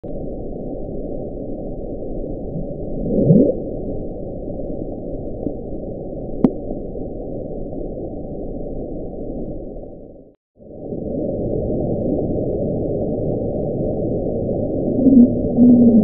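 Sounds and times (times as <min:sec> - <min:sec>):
low underwater noise: 0:00.0 - 0:16.0.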